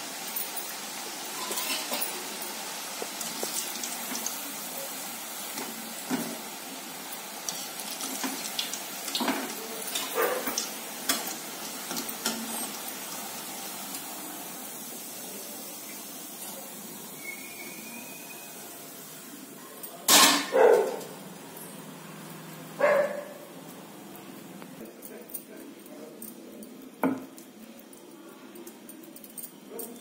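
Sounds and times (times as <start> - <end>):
deep-frying sizzle in oil: 0.0 - 24.1
wire skimmer clinking on pan: 1.3 - 2.2.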